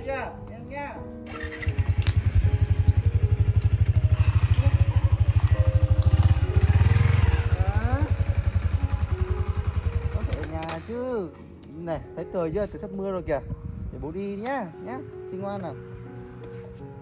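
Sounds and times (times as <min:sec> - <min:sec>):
motorcycle engine idling: 0:01.3 - 0:11.3.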